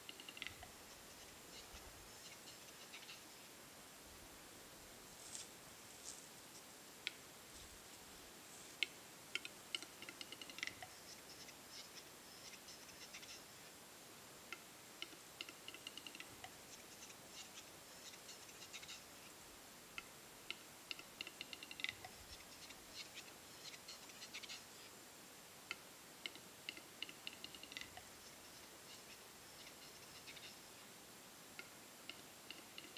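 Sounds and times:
bird dry clicks: 0:00.0 - 0:00.7, 0:08.8 - 0:10.9, 0:14.5 - 0:16.3, 0:20.0 - 0:22.1.

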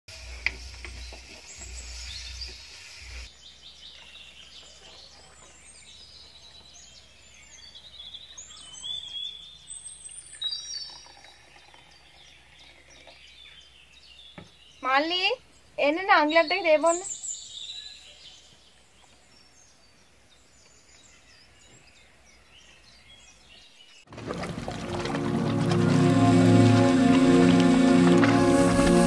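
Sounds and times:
birds chirping and whistling: 0:00.5 - 0:15.2, 0:16.1 - 0:18.6.

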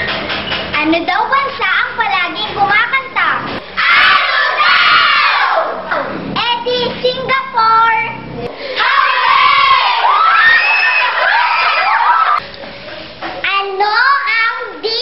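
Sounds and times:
girls shouting: 0:03.8 - 0:06.0, 0:08.7 - 0:12.4.

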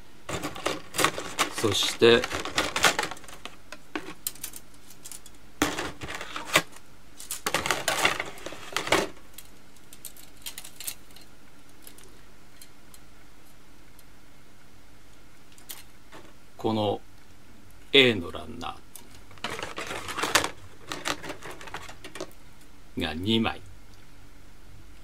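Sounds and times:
plastic runners clicking and clattering: 0:00.3 - 0:04.6, 0:05.2 - 0:09.2, 0:19.3 - 0:22.3.

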